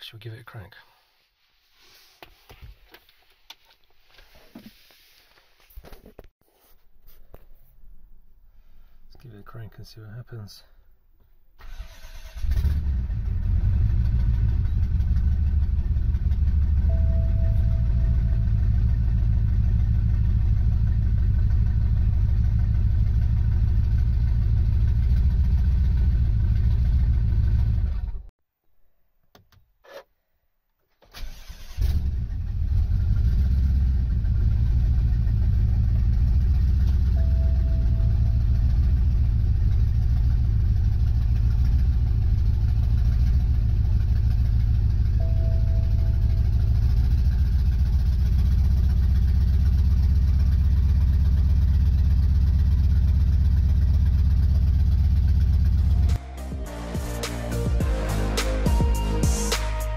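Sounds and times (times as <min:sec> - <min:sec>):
car engine starting and idling: 0:11.6 - 0:28.3, 0:31.0 - 0:59.9.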